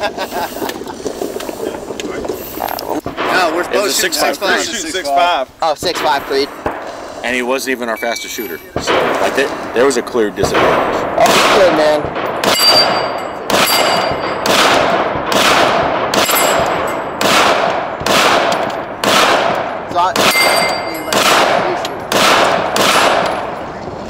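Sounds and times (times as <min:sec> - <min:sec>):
rifle shots with echo: 0:03.0 - 0:04.8, 0:05.8 - 0:07.7, 0:08.8 - 0:23.8.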